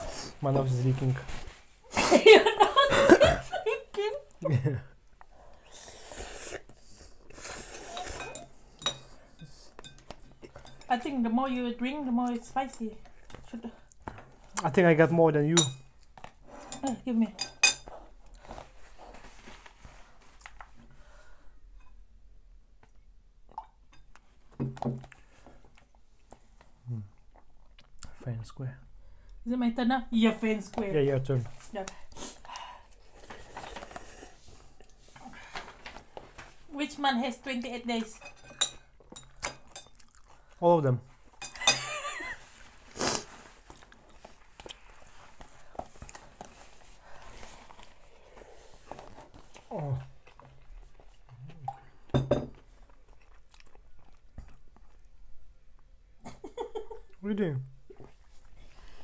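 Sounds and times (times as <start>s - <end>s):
nose blowing into tissue: 5.6s - 8.2s, 42.9s - 43.4s
chewing: 25.0s - 28.2s, 38.7s - 40.6s, 43.2s - 55.9s
eating sounds: 39.2s - 40.6s, 47.4s - 55.2s.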